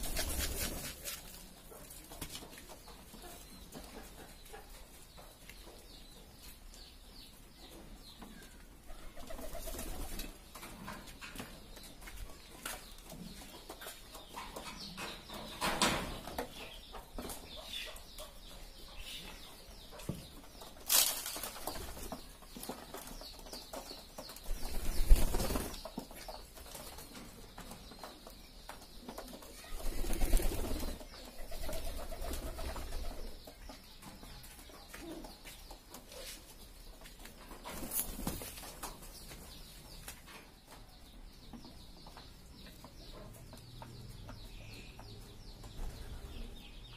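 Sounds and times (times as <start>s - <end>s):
wings flapping: 0.0s - 1.2s, 9.2s - 10.3s, 24.5s - 25.8s, 29.7s - 33.2s.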